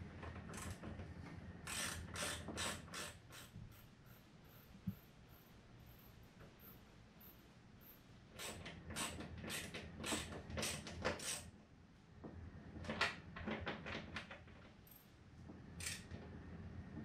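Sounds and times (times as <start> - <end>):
screwdriver turning screw creaks: 1.7 - 3.5.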